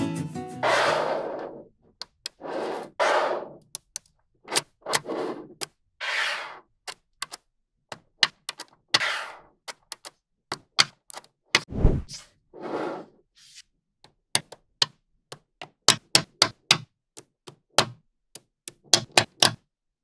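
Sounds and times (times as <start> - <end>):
rattling swishes of rolling balls: 0.6 - 1.7.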